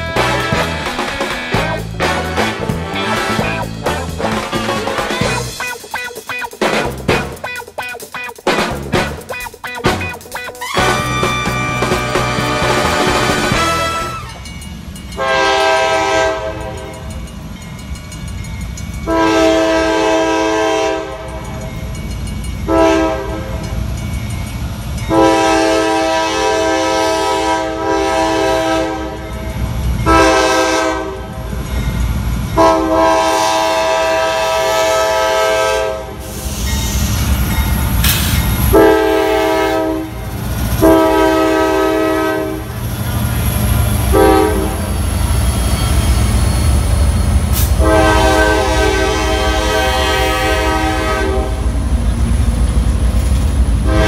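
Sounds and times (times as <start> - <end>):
locomotive air horn blasts: 0.0 - 5.2, 10.6 - 14.5, 15.2 - 16.9, 19.1 - 21.4, 22.7 - 23.7, 25.1 - 29.3, 30.1 - 31.4, 32.6 - 36.7, 38.7 - 42.8, 44.1 - 45.0, 47.6 - 51.7
train rumble and wheel clatter: 0.0 - 54.0.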